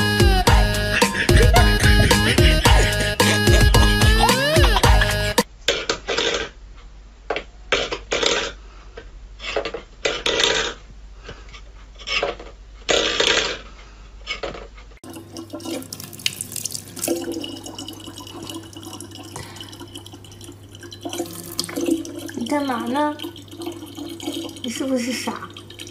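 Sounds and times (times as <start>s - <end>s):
tap water running into plastic bottle: 15.0s - 25.9s.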